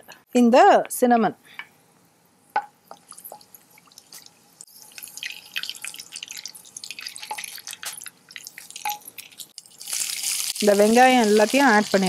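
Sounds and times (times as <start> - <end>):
spices crackling in hot oil: 2.8 - 12.0.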